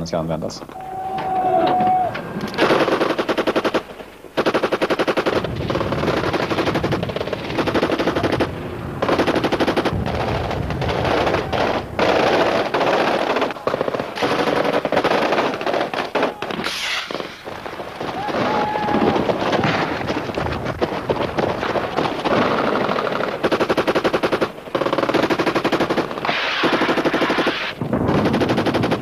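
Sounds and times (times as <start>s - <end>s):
automatic gunfire bursts: 2.6s - 17.3s, 20.8s - 29.0s.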